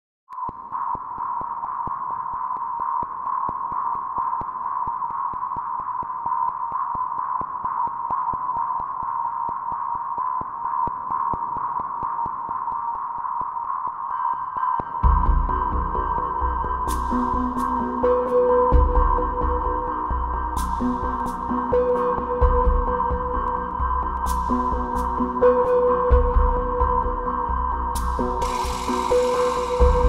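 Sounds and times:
high electronic drone: 15.0 - 30.0.

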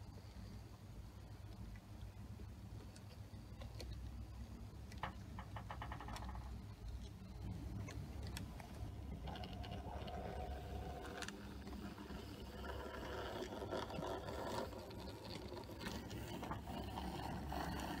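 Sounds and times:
model train motor hum: 8.8 - 18.0.

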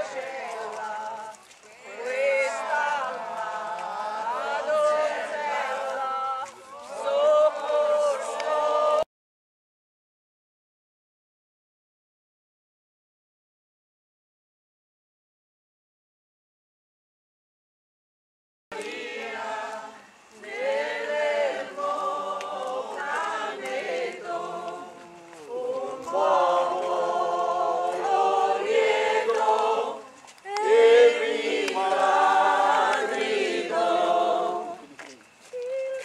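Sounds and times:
crowd singing a hymn: 0.0 - 9.1, 18.7 - 35.2.

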